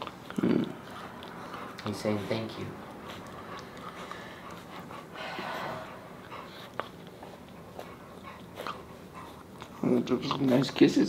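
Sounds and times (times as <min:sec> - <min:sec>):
puppy sniffing and licking: 0:00.0 - 0:11.0
breathy snuffles: 0:00.3 - 0:07.4.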